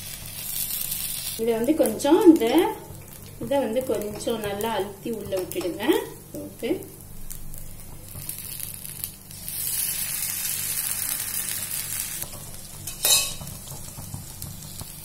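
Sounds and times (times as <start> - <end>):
batter sizzling in hot oil: 0.0 - 15.0.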